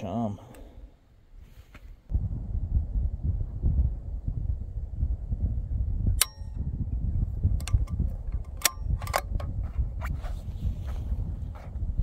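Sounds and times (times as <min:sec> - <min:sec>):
wind buffeting the microphone: 0:02.0 - 0:12.0
sharp metallic clink: 0:06.2 - 0:06.7
rifle bolt clicking: 0:07.6 - 0:09.5.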